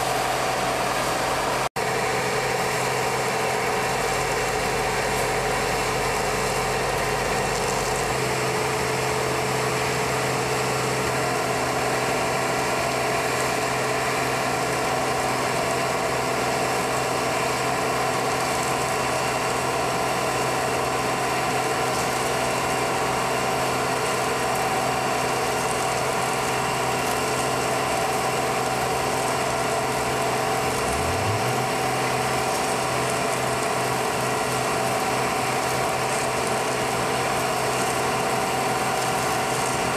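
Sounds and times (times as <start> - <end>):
fan motors humming: 29.2 - 33.1
deep machinery rumble: 29.4 - 33.7
steady whining tones: 30.0 - 32.8.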